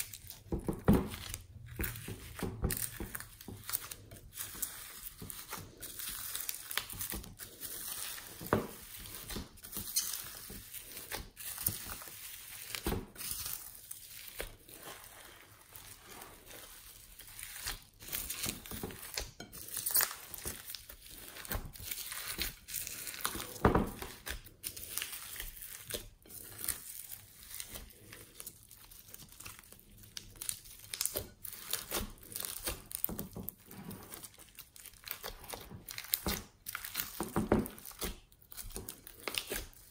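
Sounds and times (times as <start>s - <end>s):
slime crackling and crinkling: 0.0s - 39.9s.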